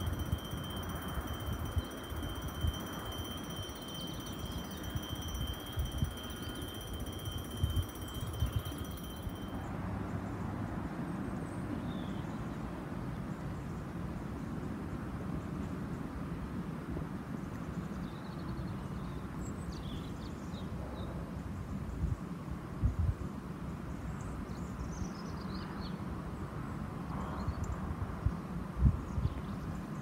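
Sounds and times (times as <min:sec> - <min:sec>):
high-pitched electronic alarm tone: 0:00.0 - 0:09.7.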